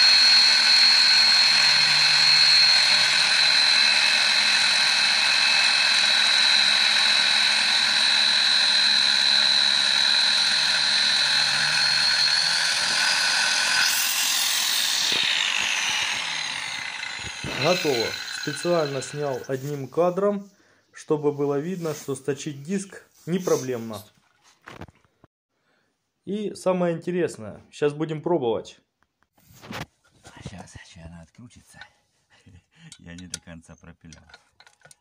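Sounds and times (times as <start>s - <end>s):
grinder spinning down: 0.0s - 19.9s
angle grinder grinding metal: 0.0s - 20.1s, 23.3s - 24.1s.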